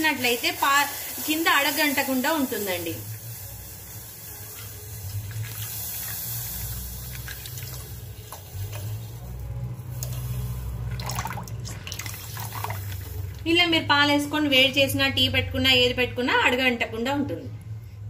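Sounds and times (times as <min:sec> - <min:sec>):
milk pouring and splashing: 0:05.2 - 0:08.9, 0:10.8 - 0:13.4
low steady hum: 0:06.7 - 0:18.0.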